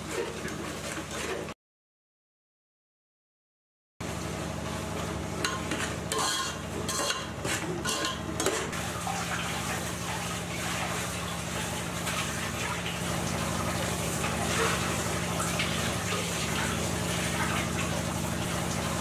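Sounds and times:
hum and hiss of cooking: 0.0s - 1.6s, 4.0s - 19.0s
spoon scraping metal pot: 5.4s - 8.8s.

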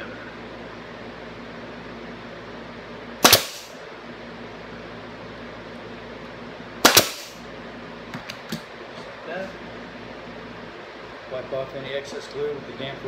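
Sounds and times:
pneumatic stapler firing into wood: 3.2s - 3.8s, 6.8s - 7.4s.

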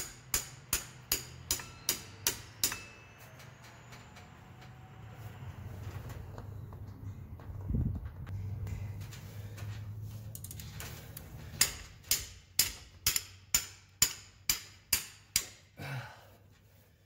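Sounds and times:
hammer striking wrench: 0.0s - 3.7s, 11.5s - 15.8s.

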